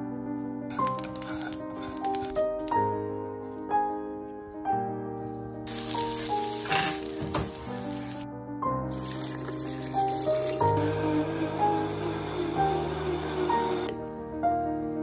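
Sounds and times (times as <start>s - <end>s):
instrumental music: 0.0s - 15.0s
onions frying in pan: 5.6s - 8.2s, 8.9s - 11.0s
broth splashing into blender: 8.9s - 13.9s.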